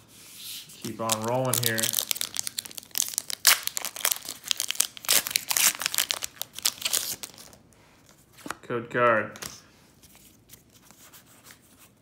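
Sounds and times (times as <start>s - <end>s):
foil wrapper crinkling and tearing: 0.9s - 7.6s.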